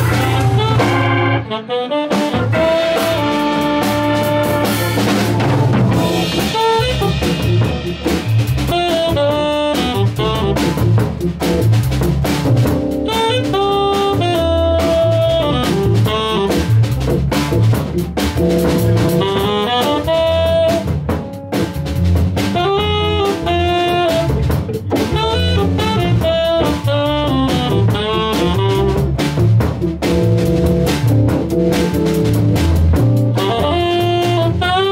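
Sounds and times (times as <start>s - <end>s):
archtop guitar: 0.0s - 1.5s, 21.2s - 26.9s
saxophone melody: 0.0s - 11.6s, 12.7s - 16.9s, 17.9s - 21.6s, 22.5s - 29.3s, 31.0s - 34.9s
drum kit steady beat: 0.0s - 34.9s.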